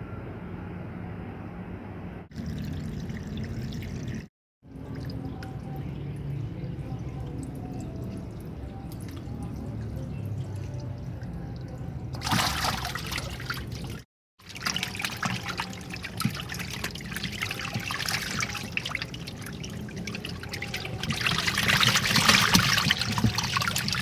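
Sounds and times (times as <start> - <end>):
water trickling and splashing: 2.3 - 24.0.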